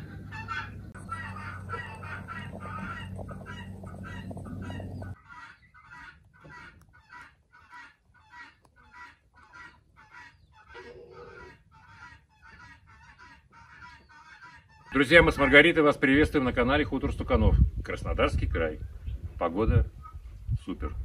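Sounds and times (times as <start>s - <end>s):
steady low hum: 0.0s - 5.2s
farmyard poultry calling: 0.0s - 16.3s.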